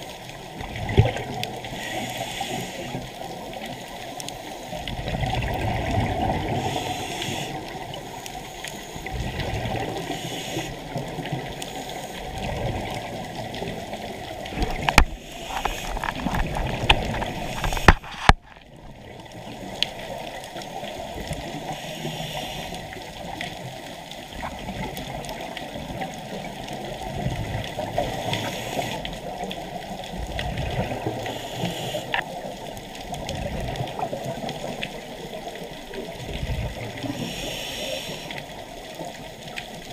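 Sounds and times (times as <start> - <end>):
diver's regulator breathing underwater: 1.0 - 3.3, 4.4 - 13.7, 14.5 - 18.5, 21.4 - 23.0, 27.8 - 29.3, 30.6 - 32.3, 36.8 - 38.6.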